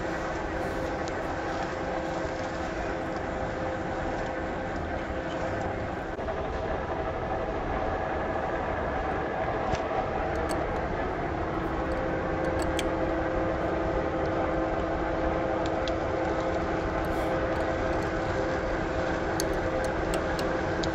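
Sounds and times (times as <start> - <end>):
steady hum: 0.0 - 20.9
tractor engine running: 10.2 - 14.7.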